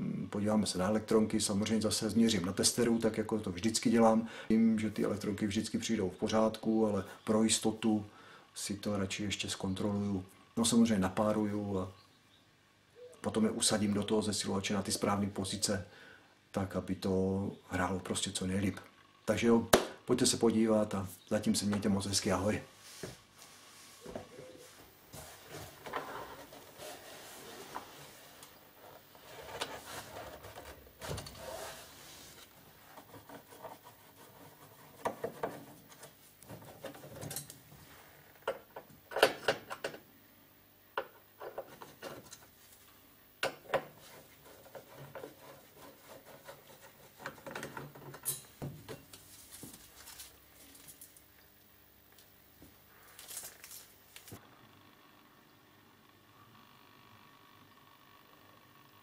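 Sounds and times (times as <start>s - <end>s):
rubbing: 22.9s - 37.2s, 44.0s - 48.0s.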